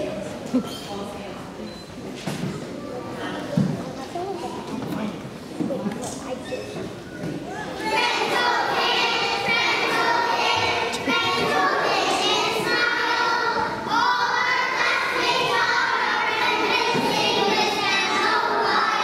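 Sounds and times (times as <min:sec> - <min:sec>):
young children singing: 0:07.5 - 0:19.0.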